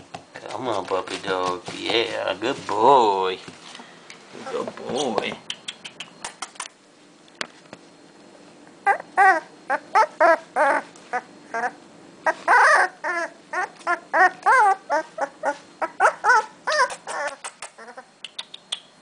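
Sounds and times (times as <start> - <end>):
puppy whimpering: 8.8 - 18.2.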